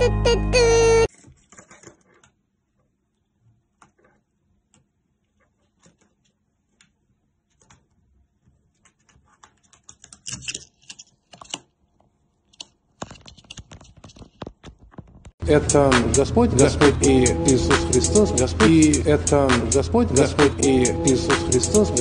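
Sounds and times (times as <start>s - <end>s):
parrot pecking at pencil: 1.1s - 15.0s.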